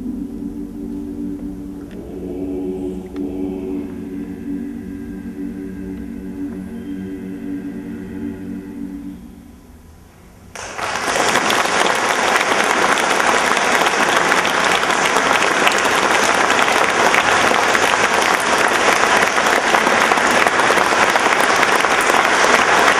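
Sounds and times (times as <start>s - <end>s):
audience applause: 10.5s - 22.9s.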